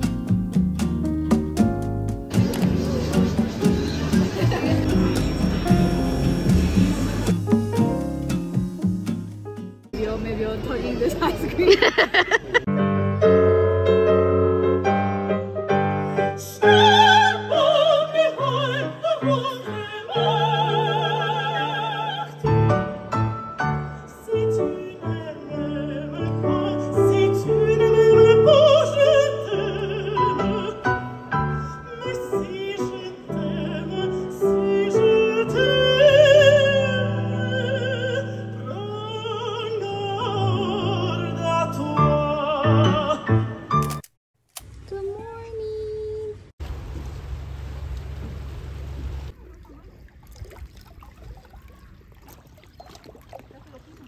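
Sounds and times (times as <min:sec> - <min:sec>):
piano: 0:00.0 - 0:10.4, 0:12.6 - 0:44.1
woman singing operatically: 0:16.4 - 0:22.7, 0:24.1 - 0:43.4.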